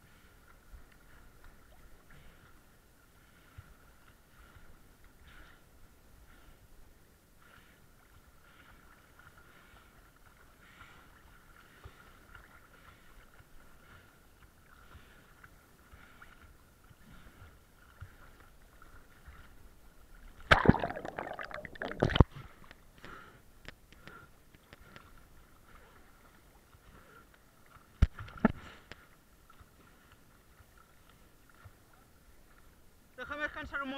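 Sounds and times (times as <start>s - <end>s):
sea water splashing on camera: 20.4s - 22.4s.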